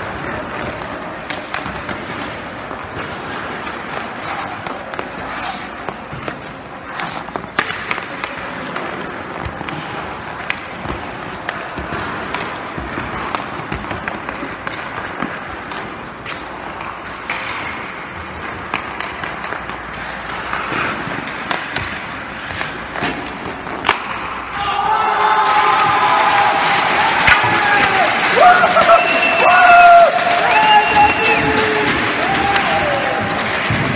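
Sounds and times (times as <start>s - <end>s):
stick clacking on puck: 0.0s - 24.6s
skates scraping on ice: 0.0s - 33.9s.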